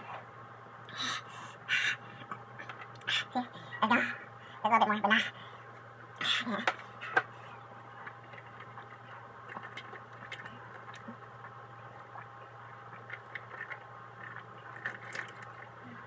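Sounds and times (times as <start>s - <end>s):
low steady hum: 0.0s - 16.0s
person gulping water: 8.1s - 16.0s.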